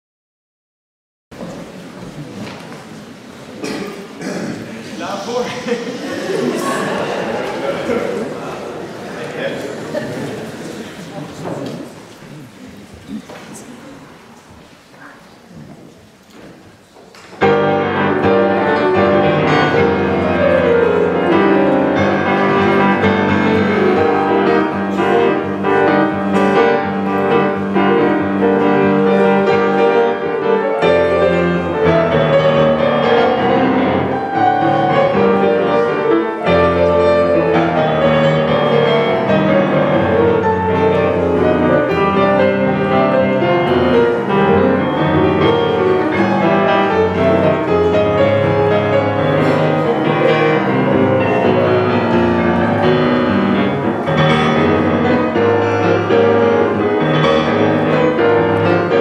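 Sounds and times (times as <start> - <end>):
piano waltz: 17.3 - 59.0.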